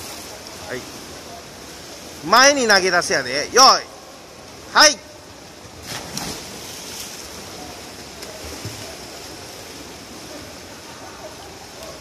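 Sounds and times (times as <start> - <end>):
churning water echoing: 0.0 - 12.0
dive splash into water: 5.8 - 7.2.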